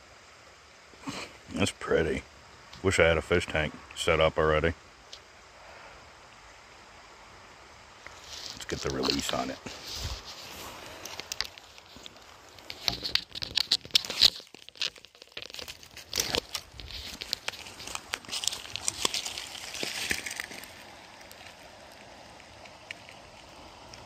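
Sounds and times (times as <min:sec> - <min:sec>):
footsteps on gravel: 0:15.4 - 0:21.6.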